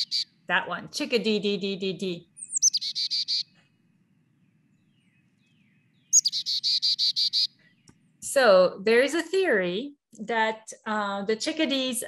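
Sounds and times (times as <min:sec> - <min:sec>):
chickadee calling: 0:00.0 - 0:00.4, 0:02.2 - 0:03.6, 0:04.9 - 0:08.0.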